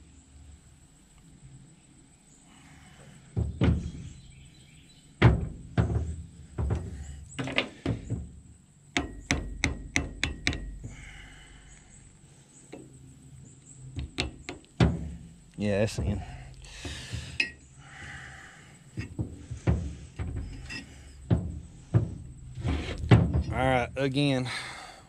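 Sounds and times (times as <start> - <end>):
heavy hammer thunks on metal: 14.0 - 15.3.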